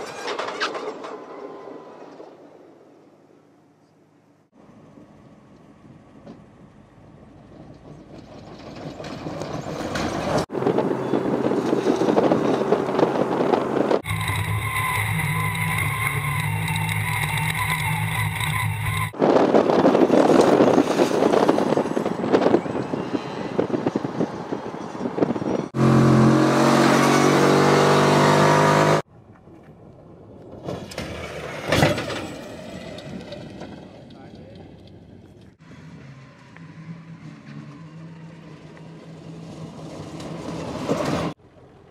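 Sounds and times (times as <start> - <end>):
wind noise: 10.2 - 25.8
electric motor whine: 14.0 - 19.1.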